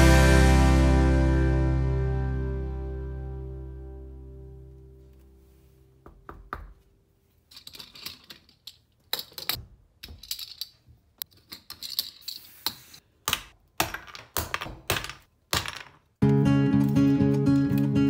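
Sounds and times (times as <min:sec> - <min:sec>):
plastic mold pieces clicking and rattling: 0:07.5 - 0:12.4.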